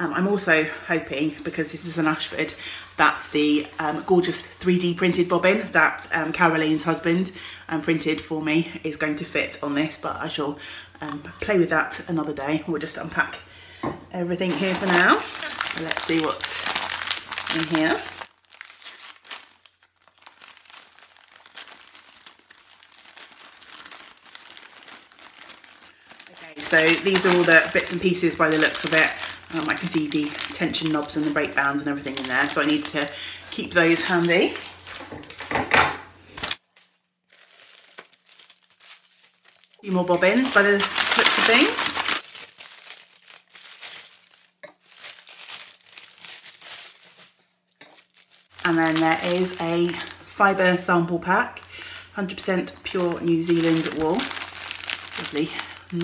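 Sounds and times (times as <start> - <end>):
packing paper crumpling: 14.4 - 35.5, 36.2 - 56.0.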